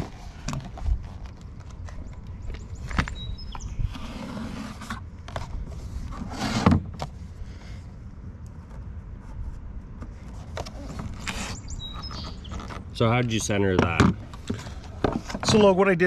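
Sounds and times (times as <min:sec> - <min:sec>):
rustling scrape: 0:03.9 - 0:07.3, 0:08.6 - 0:12.9.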